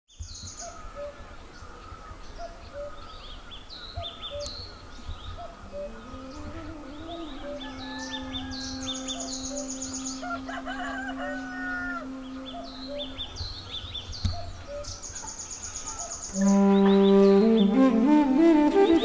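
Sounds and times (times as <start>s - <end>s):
small birds chirping: 0.1s - 18.0s
rooster crowing: 7.0s - 13.3s.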